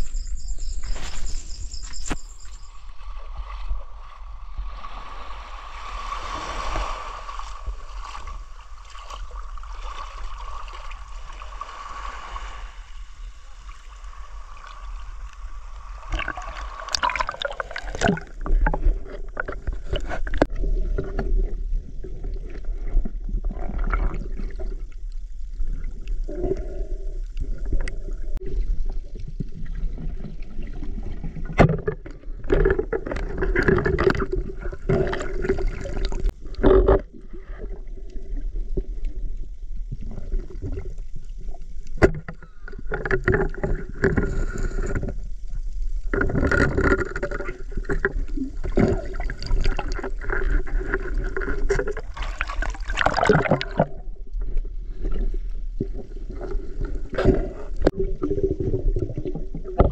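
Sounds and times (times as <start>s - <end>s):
deep underwater rumble: 0.0s - 59.9s
water sloshing and splashing: 2.0s - 59.9s
underwater gurgling: 2.5s - 59.9s
underwater knocks: 42.0s - 45.1s, 57.2s - 59.9s.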